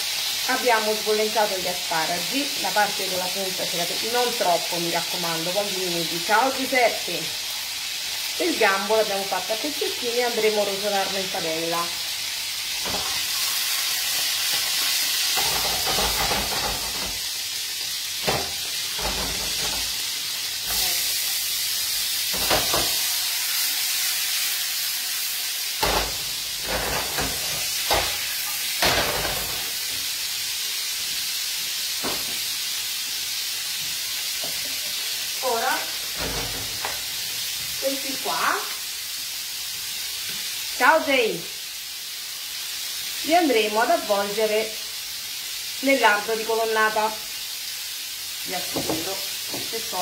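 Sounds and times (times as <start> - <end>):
vegetables sizzling in a pan: 0.0 - 50.0
pans and utensils clinking: 14.4 - 17.3, 18.2 - 20.0, 25.8 - 29.8.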